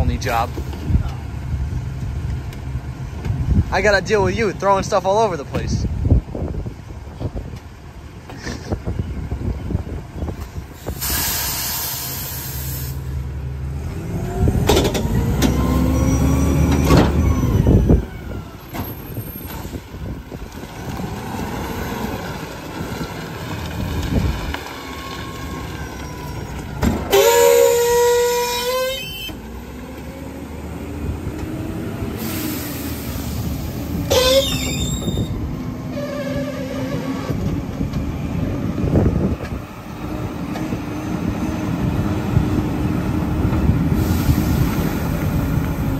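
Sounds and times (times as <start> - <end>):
brakes squealing: 0.0 - 45.9
air brakes hissing: 10.6 - 13.2, 32.1 - 37.3, 43.8 - 45.6
truck engine revving: 10.8 - 45.9.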